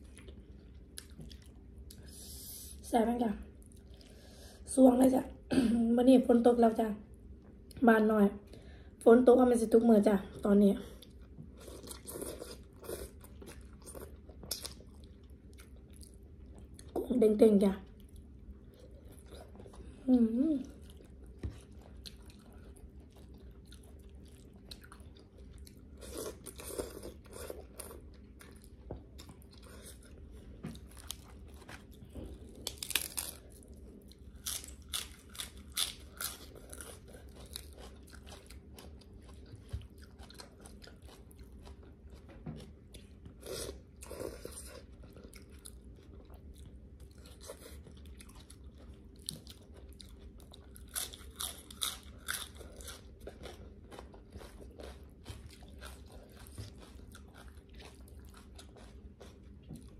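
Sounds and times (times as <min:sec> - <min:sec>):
wet chewing: 0:20.7 - 0:59.9.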